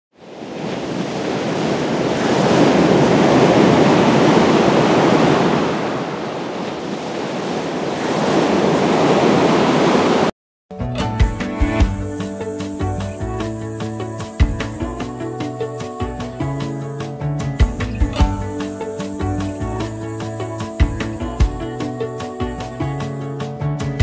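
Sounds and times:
ocean surf breaking on beach: 0.2 - 10.3.

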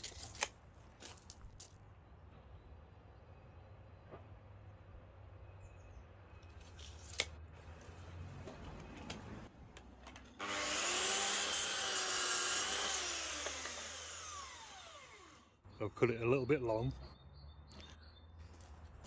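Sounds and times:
mitre saw cutting timber: 10.4 - 15.6.

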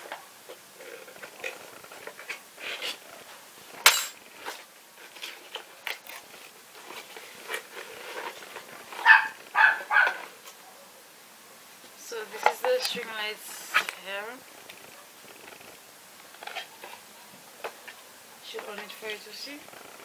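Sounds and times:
dog barking: 9.0 - 11.0.

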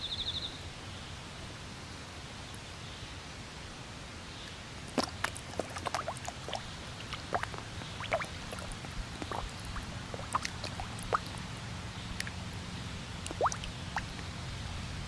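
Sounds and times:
fish popping and gulping at water: 4.8 - 14.3.

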